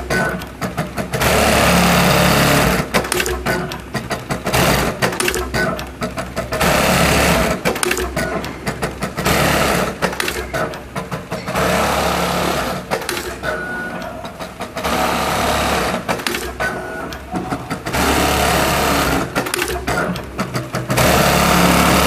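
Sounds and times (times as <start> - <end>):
sewing machine stitching: 0.0 - 22.0
sharp machine clicks: 0.0 - 22.0.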